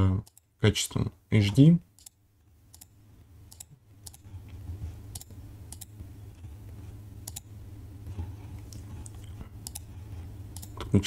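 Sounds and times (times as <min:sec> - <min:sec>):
steady low hum: 0:00.0 - 0:11.0
computer mouse clicks: 0:02.0 - 0:02.9, 0:03.5 - 0:04.2, 0:05.1 - 0:05.9, 0:07.2 - 0:07.5, 0:08.5 - 0:09.9, 0:10.5 - 0:11.0.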